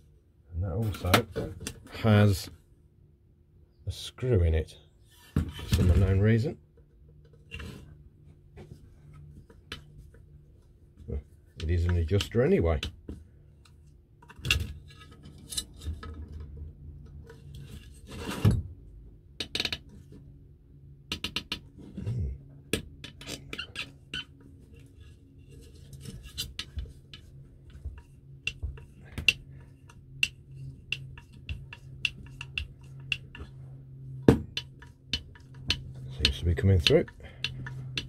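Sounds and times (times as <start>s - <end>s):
low steady hum: 0.0s - 38.0s
screwdriver scraping on metal: 23.0s - 33.6s, 34.5s - 38.0s.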